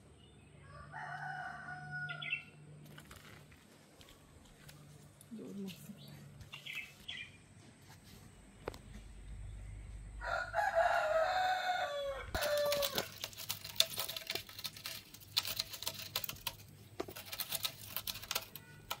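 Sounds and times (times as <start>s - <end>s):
rooster crowing: 0.6s - 2.5s, 10.2s - 13.2s
scratchy clicks and rustles: 12.4s - 19.0s.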